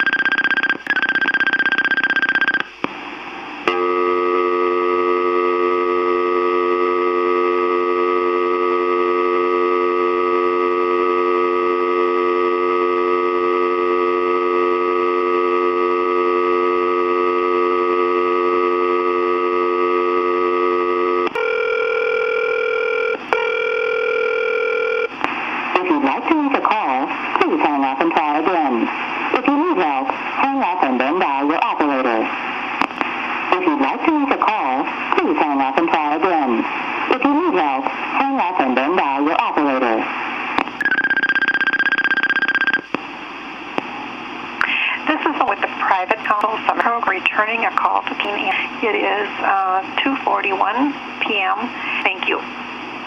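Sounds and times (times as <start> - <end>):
high steady beep: 0.0 - 2.7, 40.8 - 42.9
telephone dial tone: 0.0 - 2.7, 3.7 - 25.1, 40.8 - 42.9.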